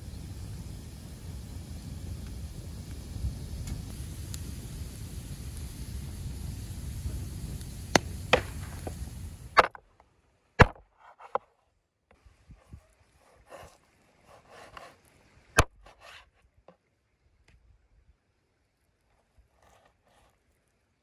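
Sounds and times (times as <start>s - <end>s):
wood fire crackling: 0.0s - 11.4s, 12.5s - 15.9s
blade scraping meat: 13.2s - 15.1s.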